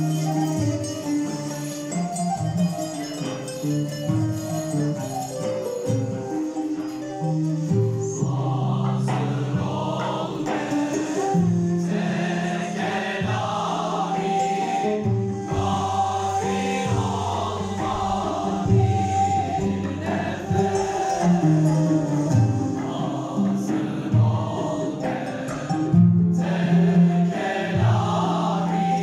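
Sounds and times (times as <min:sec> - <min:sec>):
drums: 0:00.0 - 0:29.0
flutes: 0:00.0 - 0:29.0
oud: 0:00.0 - 0:29.0
male choir singing: 0:08.0 - 0:29.0.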